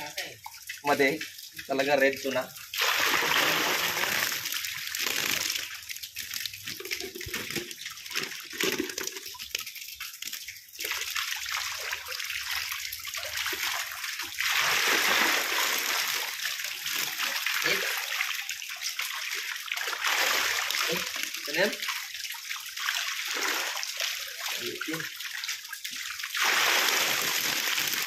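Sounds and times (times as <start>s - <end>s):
fish splashing in water: 2.7s - 12.6s, 19.3s - 21.3s, 22.0s - 24.4s, 26.2s - 28.0s.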